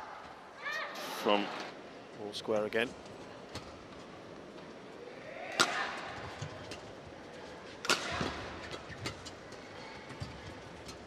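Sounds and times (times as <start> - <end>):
rackets hitting shuttlecock: 5.5 - 6.8, 7.8 - 9.4.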